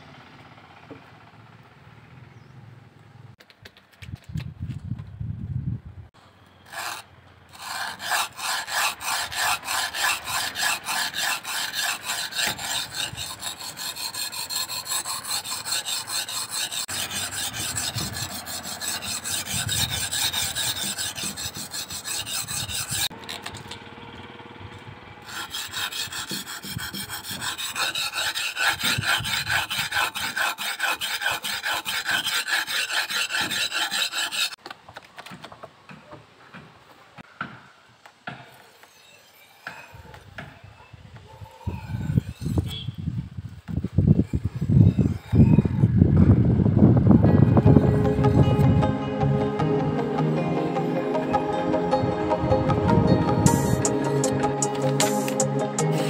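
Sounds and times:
knife scraping on sharpening stone: 7.6s - 23.1s, 41.5s - 43.0s.

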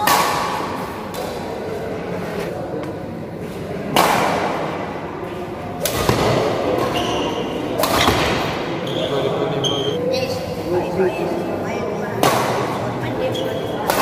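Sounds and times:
racket striking shuttlecock: 0.0s - 1.4s, 3.9s - 4.6s, 7.8s - 8.6s.

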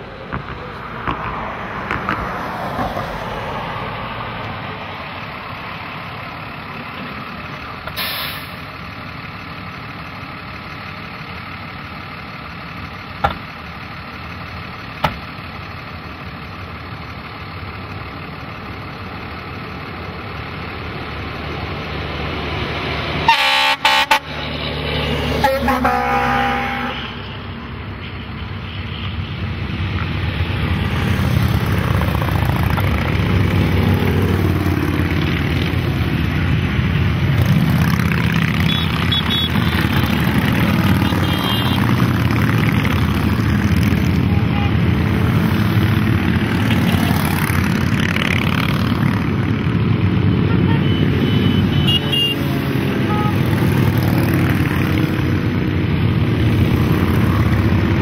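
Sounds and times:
motorcycles rumbling past: 30.8s - 36.5s, 37.2s - 49.9s, 52.4s - 58.0s.

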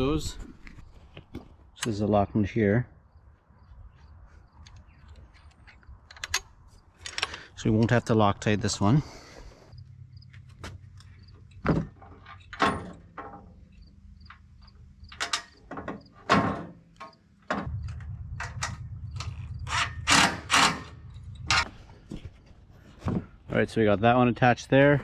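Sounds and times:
metal tools clinking and knocking: 10.9s - 21.7s.

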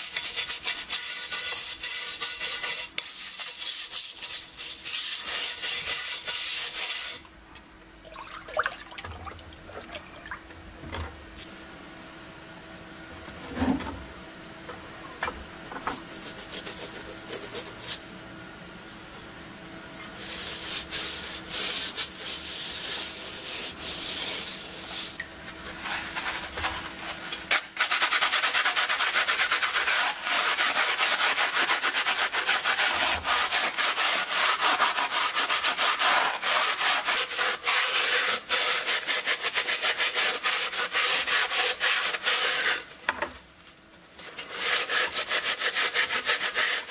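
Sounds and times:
sponge scrubbing metal helmet: 0.0s - 7.2s, 20.0s - 43.0s, 44.2s - 46.9s
liquid sloshing: 8.0s - 10.5s.

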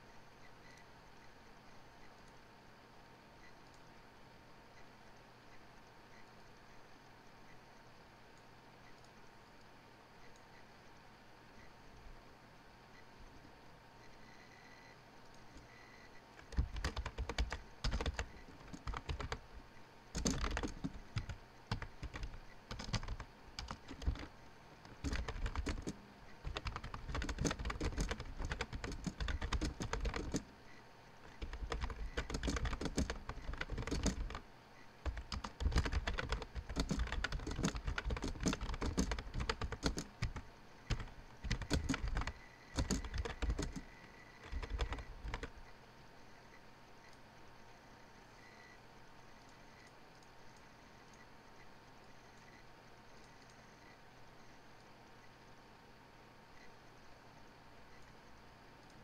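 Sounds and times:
computer keyboard typing: 15.4s - 30.5s, 31.2s - 34.4s, 35.0s - 45.6s.

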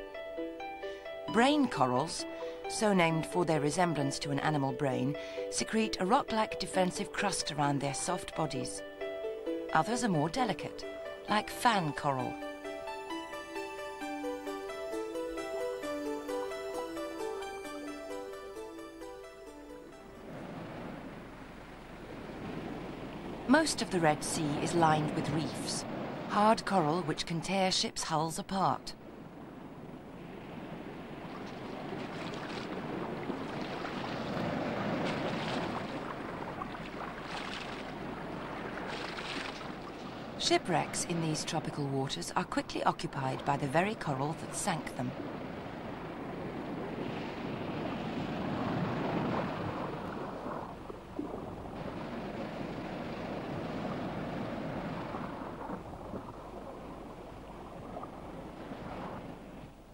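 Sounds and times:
sea water washing and splashing: 20.2s - 27.2s, 29.1s - 41.9s, 42.6s - 59.8s.

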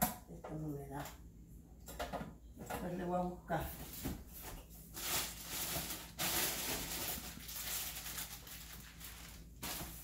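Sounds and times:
plastic packaging crinkling: 4.9s - 10.0s.

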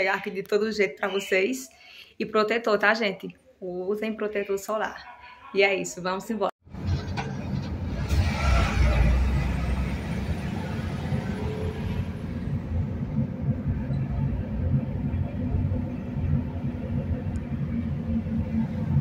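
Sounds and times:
engine and road rumble: 6.6s - 19.0s
truck passing alongside: 6.7s - 19.0s.

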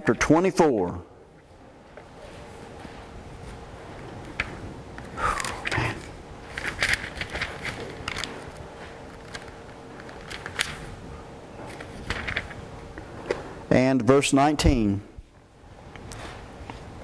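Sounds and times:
faint steady hum: 0.0s - 17.0s
paper pages rustling: 5.4s - 11.0s, 11.6s - 12.7s.

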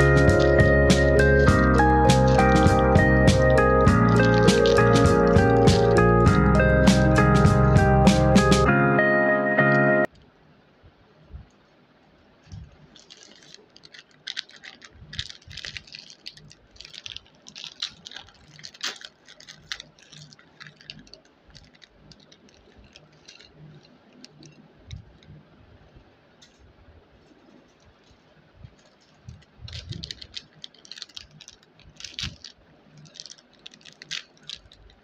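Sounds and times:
plastic packets crinkling: 0.0s - 6.4s, 12.4s - 25.4s, 27.2s - 35.0s.

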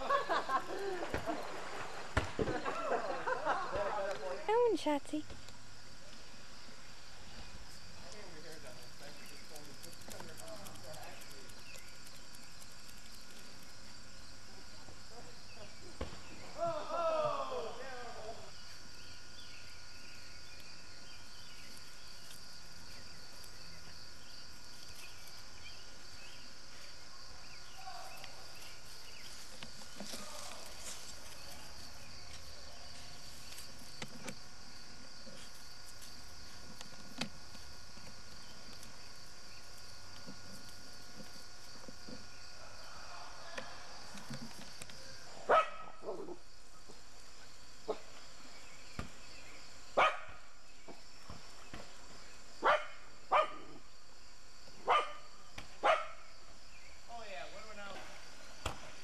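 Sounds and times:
dog barking: 45.5s - 46.4s, 50.0s - 50.4s, 52.6s - 53.8s, 54.8s - 56.2s.

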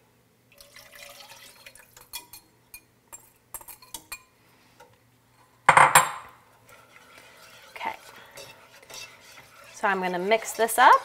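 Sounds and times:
broth pouring into saucepan: 0.5s - 2.1s
cup and whisk clinking on pot: 5.7s - 11.0s.

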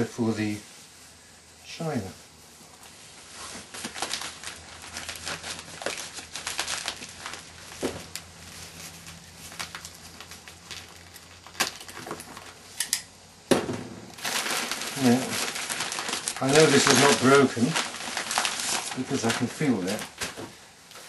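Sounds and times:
wrapping crinkling and rustling: 0.0s - 12.8s, 14.0s - 21.0s.

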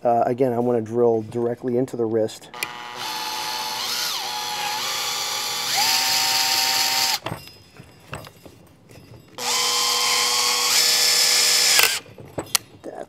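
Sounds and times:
cordless drill boring into wood: 2.5s - 7.3s, 9.4s - 12.0s.

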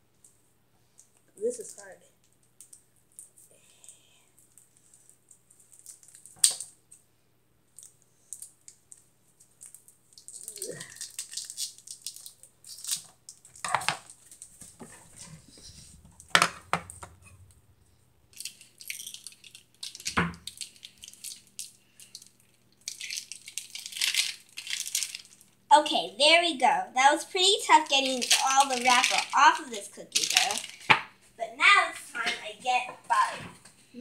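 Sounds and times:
plastic wrapper crinkling: 4.5s - 6.7s, 7.8s - 14.8s, 18.3s - 25.7s, 27.4s - 31.0s.

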